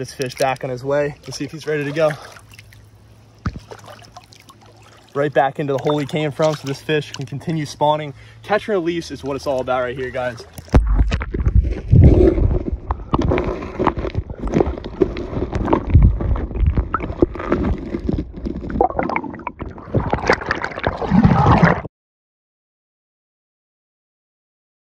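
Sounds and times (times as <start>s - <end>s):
water gurgling underwater: 10.6s - 21.9s.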